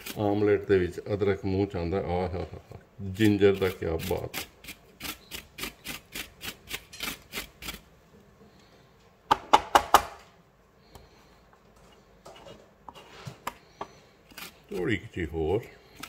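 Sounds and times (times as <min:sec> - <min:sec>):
ginger scraping on metal grater: 0:00.0 - 0:00.4, 0:03.1 - 0:07.8, 0:14.3 - 0:15.0.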